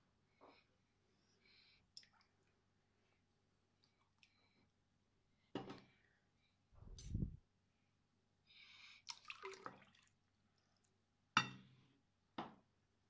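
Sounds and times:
water pouring and splashing: 9.1s - 10.1s.

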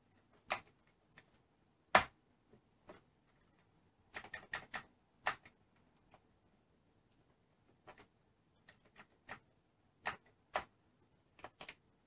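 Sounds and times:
keyboard keys clicking: 2.9s - 6.2s, 7.7s - 11.8s.

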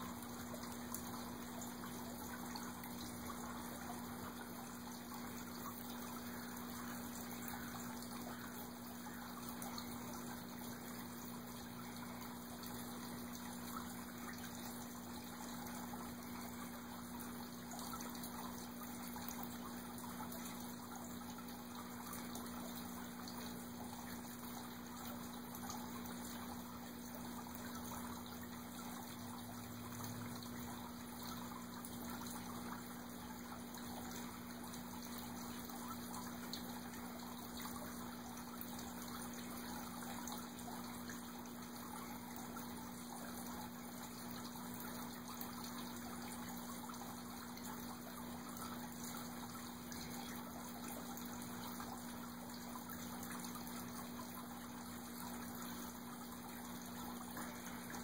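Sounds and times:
low steady hum: 0.0s - 58.0s
water trickling: 0.0s - 58.0s.

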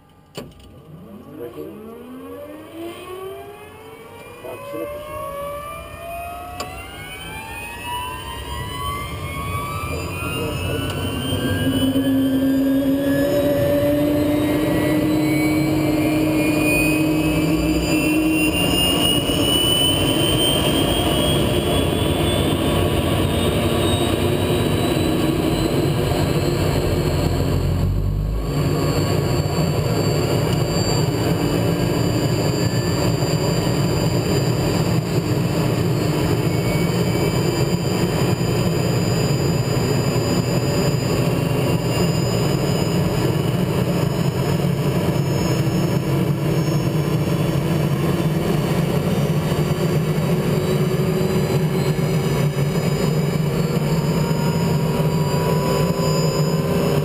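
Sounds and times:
helicopter turbine whine: 0.8s - 57.0s
low rumble: 9.0s - 37.3s.

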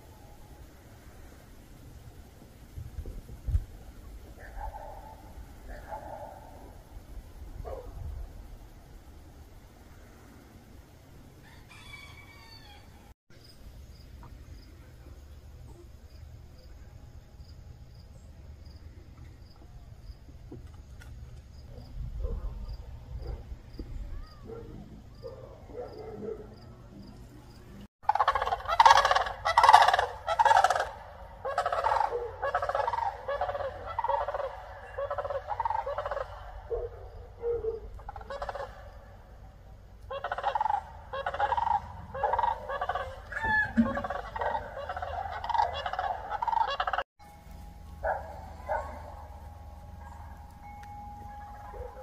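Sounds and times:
wild turkeys yelping: 11.5s - 13.0s, 28.0s - 39.3s, 40.0s - 47.0s, 47.9s - 52.0s.

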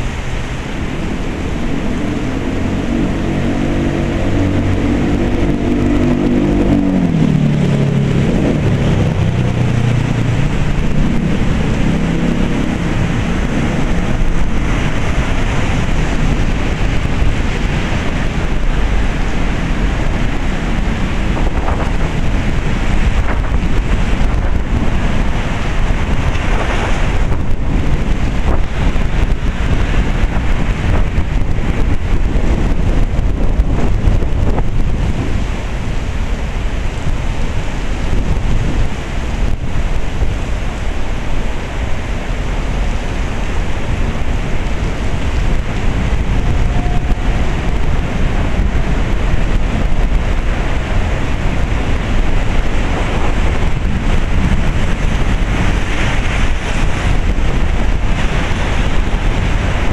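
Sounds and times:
heavy rain pouring: 0.0s - 59.9s
passing vehicle engine drone: 0.0s - 59.9s.

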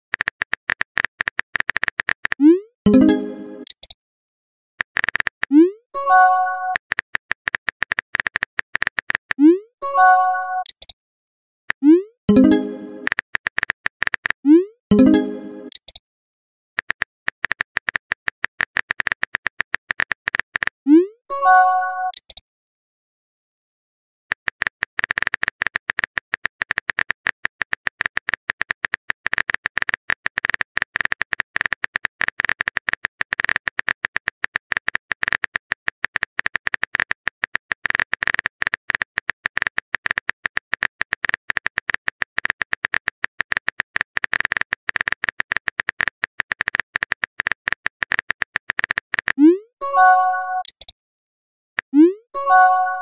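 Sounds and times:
keystroke clicks: 0.1s - 4.0s, 10.6s - 11.0s, 11.8s - 16.0s, 24.3s - 49.4s, 50.4s - 50.9s.

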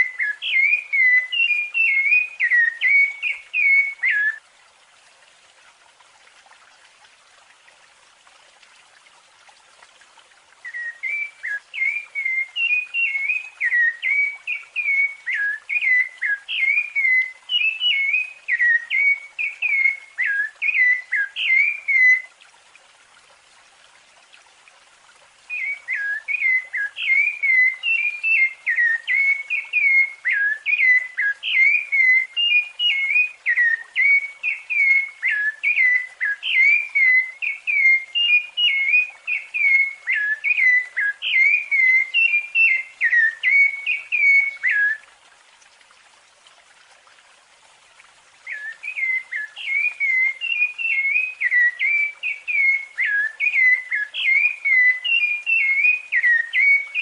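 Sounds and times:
thrush singing whistled notes: 0.0s - 4.4s, 10.6s - 22.3s, 25.5s - 45.1s, 48.4s - 57.0s.

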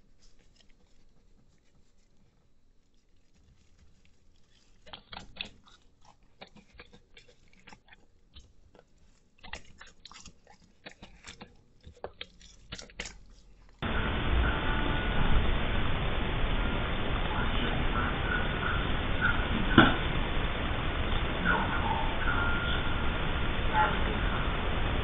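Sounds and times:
dog chewing and smacking: 0.0s - 13.8s
loud steady hiss: 13.8s - 25.0s.

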